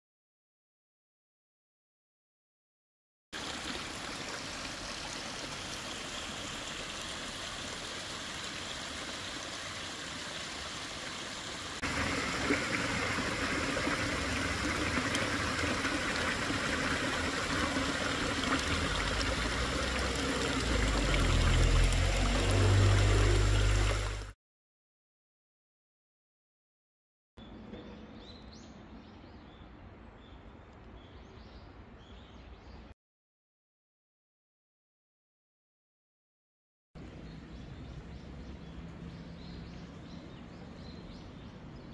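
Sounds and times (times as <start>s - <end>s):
waterfall rushing: 8.4s - 24.3s.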